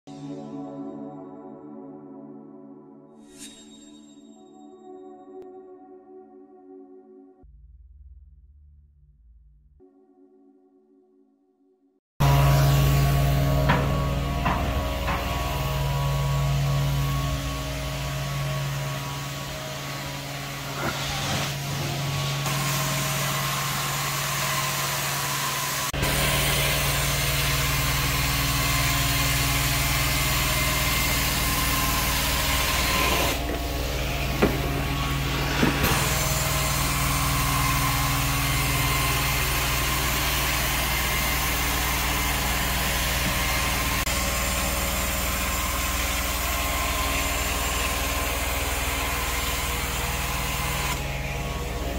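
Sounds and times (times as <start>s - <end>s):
carpet cleaning machine running: 12.2s - 51.9s
suction and spray hiss: 15.2s - 46.4s.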